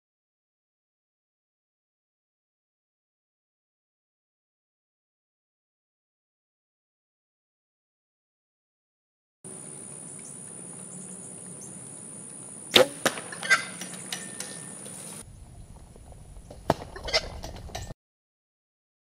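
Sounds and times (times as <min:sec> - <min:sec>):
arrow striking sharp crack: 0:12.7 - 0:15.2.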